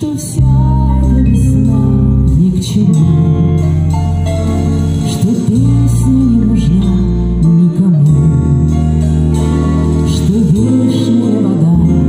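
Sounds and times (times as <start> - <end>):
woman singing: 0.0 - 3.9, 5.0 - 12.0
live band playing a slow song: 0.0 - 12.0.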